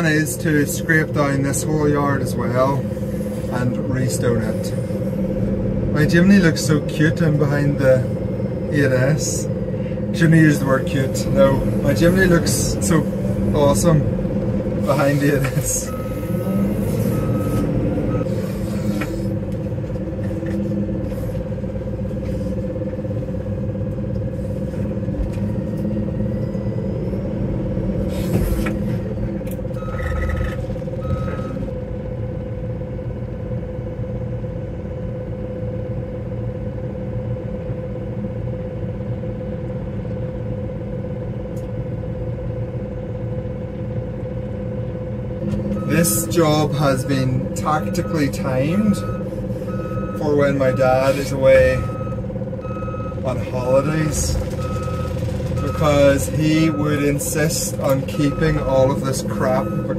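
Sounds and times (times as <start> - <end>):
diesel engine running: 0.0 - 59.9
reversing alarm beeping: 14.9 - 19.4, 25.2 - 31.7, 45.6 - 59.9.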